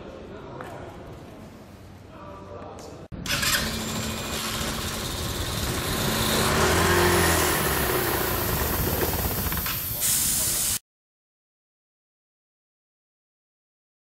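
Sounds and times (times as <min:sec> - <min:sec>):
machine rushing noise: 0:03.2 - 0:10.5.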